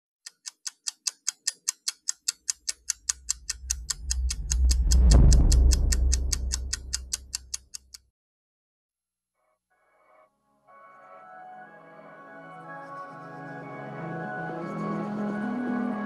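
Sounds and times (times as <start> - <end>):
clock-like ticking: 0.2 - 8.1
deep low swell: 3.0 - 7.5.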